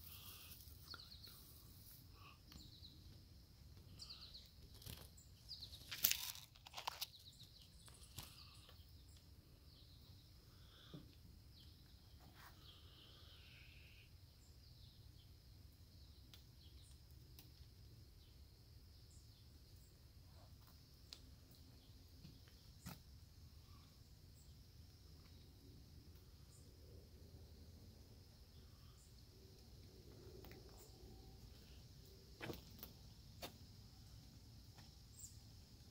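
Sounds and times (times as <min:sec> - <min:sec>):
rustles and crackles: 0:00.0 - 0:09.3
faint bird chirps: 0:00.0 - 0:17.0.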